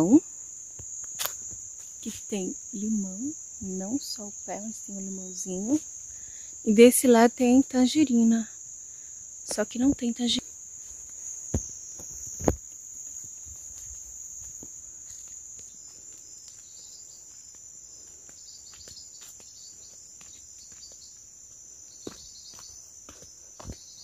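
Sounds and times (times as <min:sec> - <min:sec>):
crickets chirring: 0:00.0 - 0:24.0
footsteps on dirt path: 0:10.8 - 0:24.0.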